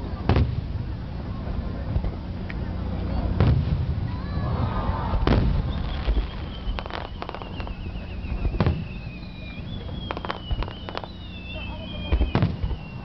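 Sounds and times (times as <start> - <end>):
crackle of fireworks reports: 0.0 - 13.0
fireworks bangs: 3.1 - 13.0
falling whistle: 5.0 - 13.0.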